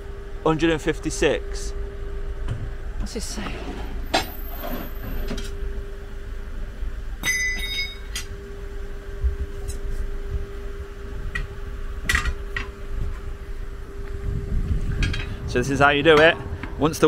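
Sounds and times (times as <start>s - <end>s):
steady low hum and rumble: 0.0s - 17.0s
ringing metallic clink: 7.2s - 8.3s.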